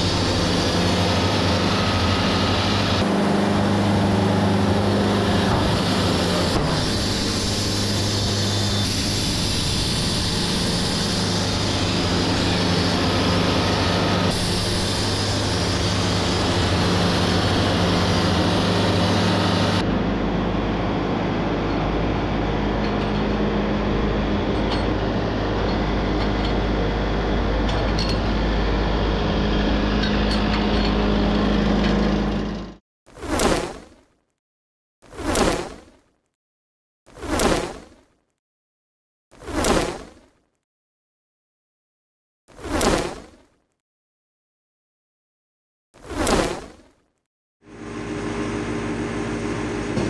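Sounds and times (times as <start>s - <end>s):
engine drone: 0.0s - 32.8s, 47.6s - 50.0s
band saw blade hissing through wood: 5.3s - 19.8s.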